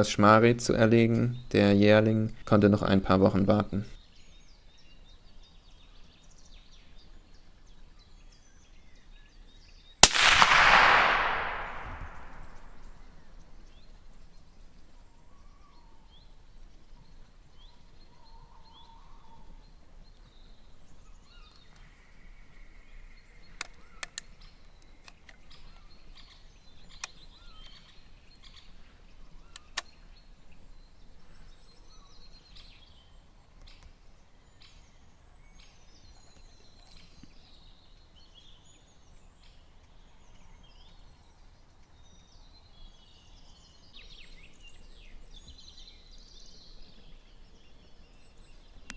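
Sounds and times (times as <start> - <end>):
faint birdsong: 0.0 - 48.9
short sharp clicks: 10.0 - 12.8
rifle shot with echo: 10.0 - 13.0.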